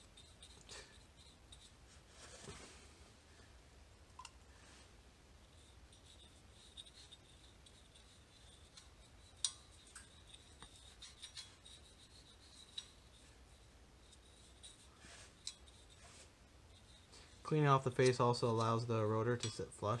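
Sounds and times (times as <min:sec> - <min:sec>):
brush scratching on metal: 0:00.0 - 0:02.6, 0:05.4 - 0:18.8.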